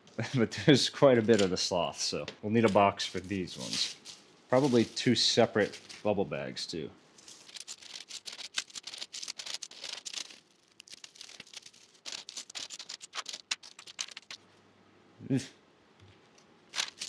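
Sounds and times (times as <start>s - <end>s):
plastic bag crinkling: 2.8s - 6.1s, 7.2s - 14.4s, 16.7s - 17.0s.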